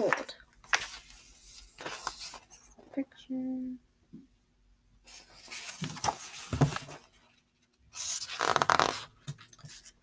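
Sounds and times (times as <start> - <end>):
book pages rustling: 0.0 - 2.8, 5.1 - 10.0.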